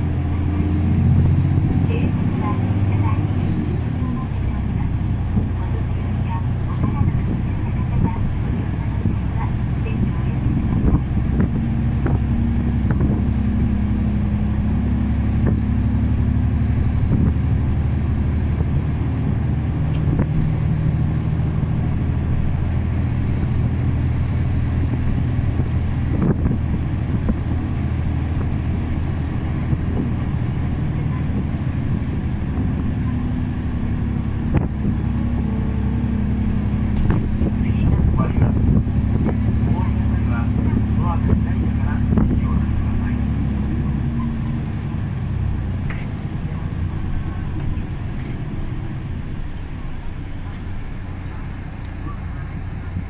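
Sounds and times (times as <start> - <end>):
bus body rattles: 0.0 - 53.0
bus engine hum: 0.0 - 53.0.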